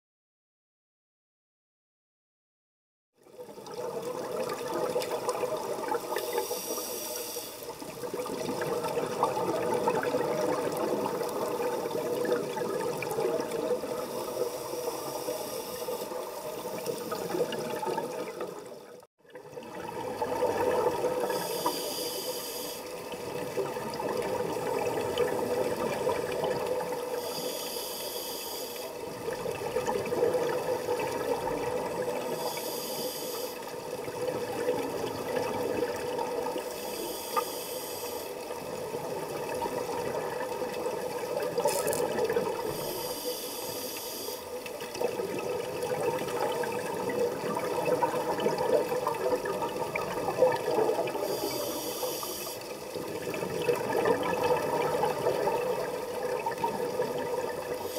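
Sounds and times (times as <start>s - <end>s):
exhaled bubbles gurgling underwater: 3.2s - 57.9s
regulator hiss of inhaled air: 6.1s - 7.8s, 13.9s - 17.2s, 21.3s - 23.0s, 27.0s - 29.1s, 32.2s - 33.7s, 36.7s - 38.5s, 42.7s - 44.6s, 51.1s - 52.8s.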